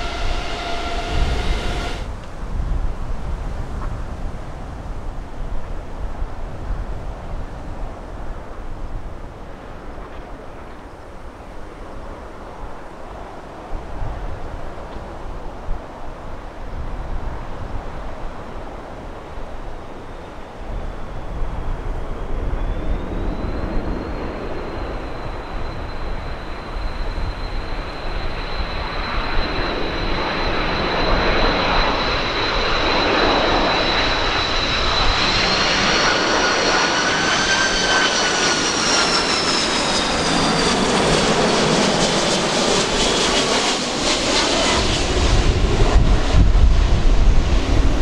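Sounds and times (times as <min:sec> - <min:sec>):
deep rumble: 0:00.0 - 0:02.3
jet airliner passing: 0:00.0 - 0:04.9, 0:07.5 - 0:48.0.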